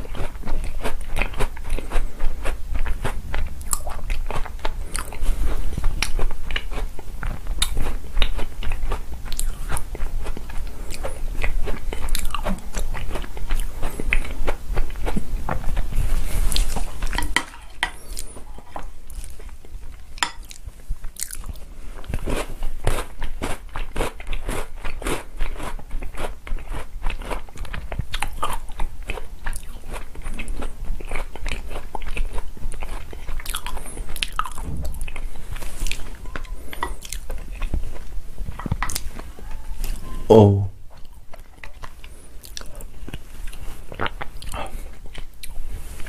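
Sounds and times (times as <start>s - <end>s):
chewing crunchy cookies: 0.0s - 40.0s, 40.9s - 46.0s.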